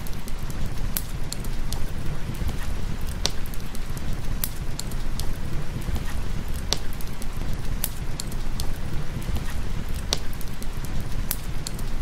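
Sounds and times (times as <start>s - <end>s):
fireplace crackling: 0.0s - 12.0s
burning wood popping: 0.1s - 11.8s.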